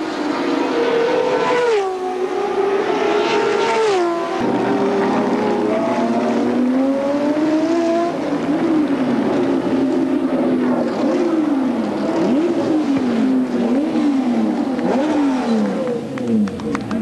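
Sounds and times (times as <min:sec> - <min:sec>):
racing car engines revving: 0:00.0 - 0:17.0.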